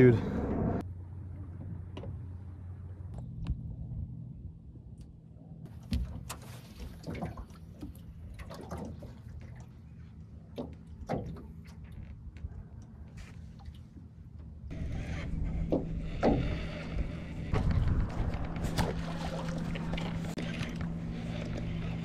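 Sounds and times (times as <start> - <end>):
low motor hum: 0.0 - 22.0
water slapping against boat hull: 5.7 - 9.8, 10.4 - 12.5, 15.6 - 22.0.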